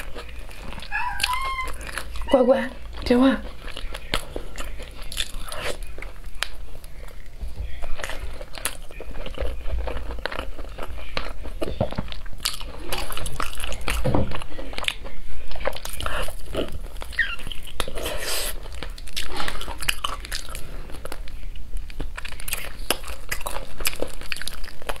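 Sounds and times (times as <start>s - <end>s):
biting and chewing crunches: 0.0s - 25.0s.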